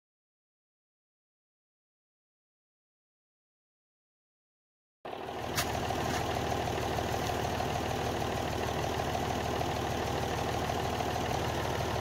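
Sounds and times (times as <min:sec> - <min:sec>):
tractor engine idling: 0:05.1 - 0:12.0.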